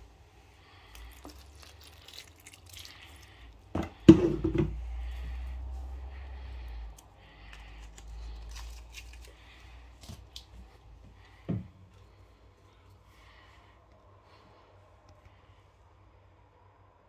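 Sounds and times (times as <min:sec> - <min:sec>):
knock on bowl: 0:03.8 - 0:04.8.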